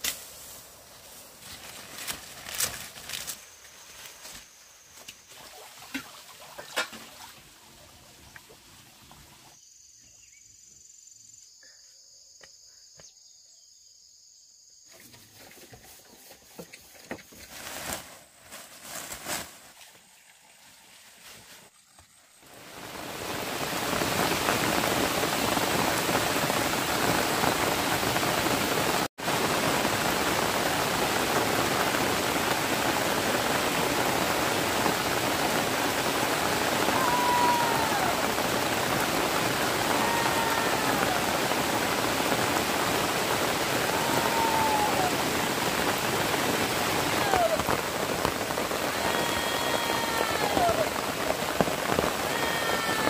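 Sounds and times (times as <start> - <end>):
water rushing: 20.0 - 53.0.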